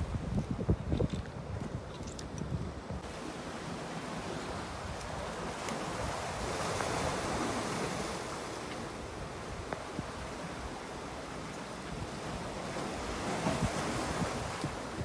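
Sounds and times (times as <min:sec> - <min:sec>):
sea surf washing in: 0:03.0 - 0:15.0.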